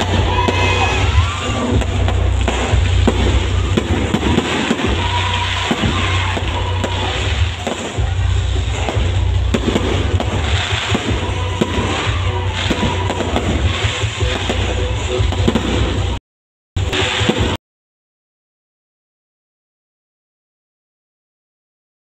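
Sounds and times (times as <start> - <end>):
fireworks popping and banging: 0.0 - 16.2, 16.8 - 17.6
music playing: 0.0 - 16.2, 16.8 - 17.6.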